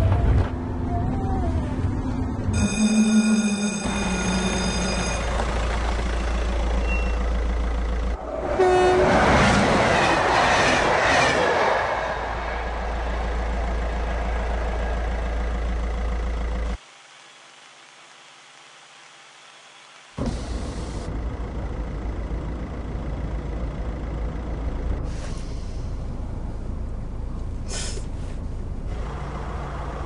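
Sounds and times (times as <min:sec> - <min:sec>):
train rushing past: 0:08.2 - 0:15.8
train horn: 0:08.4 - 0:09.6.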